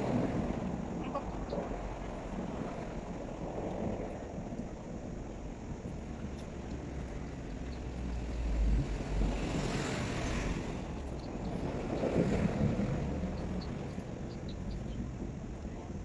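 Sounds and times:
wind buffeting microphone: 0.0s - 16.0s
faint small ticks: 3.6s - 4.8s, 5.8s - 8.0s.

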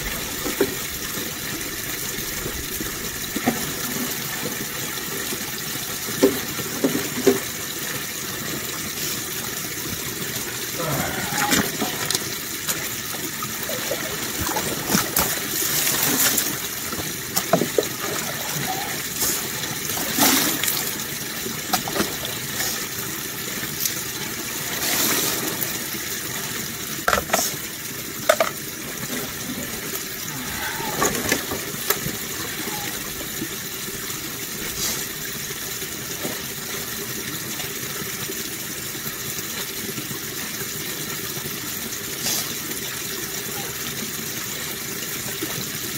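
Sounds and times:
water splashes and knocks: 0.0s - 1.4s, 6.0s - 7.7s, 11.3s - 21.0s, 21.6s - 22.8s, 27.0s - 27.6s, 28.2s - 29.8s, 30.7s - 33.4s
running water: 0.0s - 45.9s.

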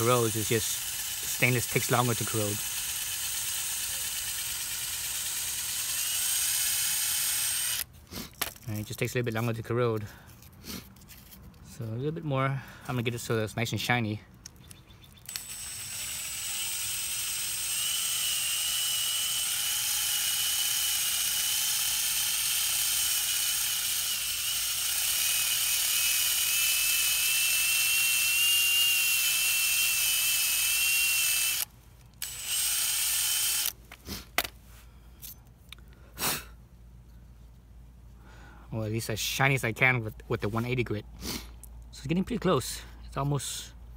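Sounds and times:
impact driver whine: 15.3s - 33.8s.

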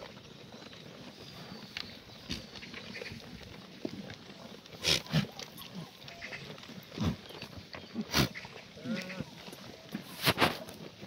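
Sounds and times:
goats grunting: 0.9s - 11.0s
hay rustling: 9.3s - 10.9s.

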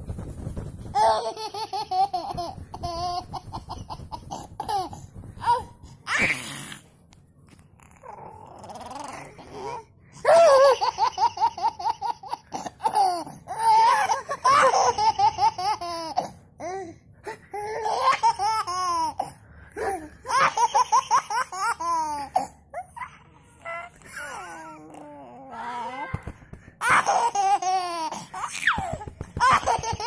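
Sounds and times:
little boy laughing: 29.4s - 30.0s.

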